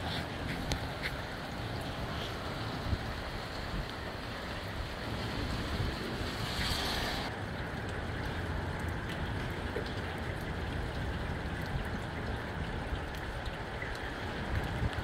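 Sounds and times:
gusty wind buffeting microphone: 0:00.0 - 0:07.3, 0:14.2 - 0:15.0.

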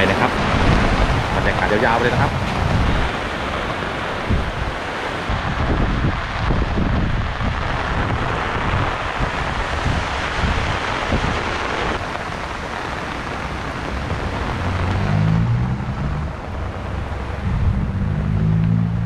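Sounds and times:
heavy rain pouring: 0:00.0 - 0:19.0
wind buffeting microphone: 0:00.0 - 0:19.0
low engine hum: 0:13.1 - 0:19.0.

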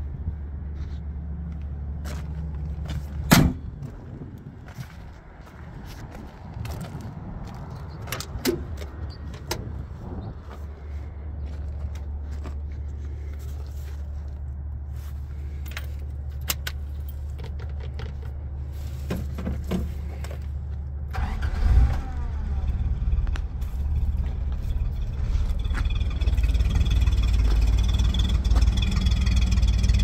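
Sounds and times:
steady low hum: 0:21.8 - 0:30.0.

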